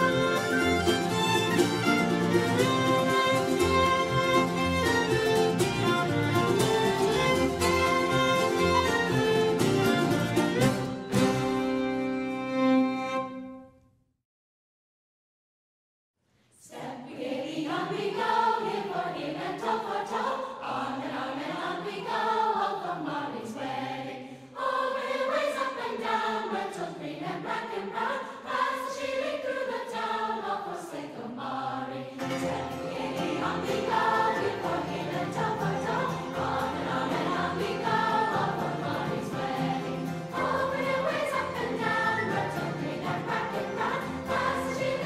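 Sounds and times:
choir singing slow melody: 0:16.6 - 0:45.0.

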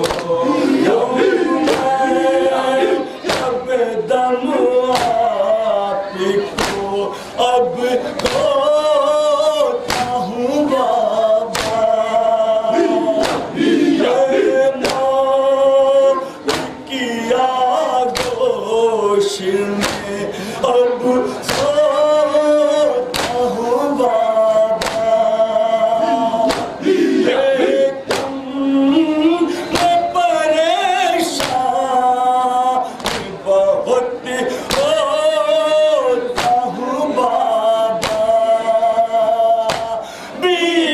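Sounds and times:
men chanting a lament: 0:00.0 - 0:40.9
hands striking chests: 0:26.5 - 0:26.8.

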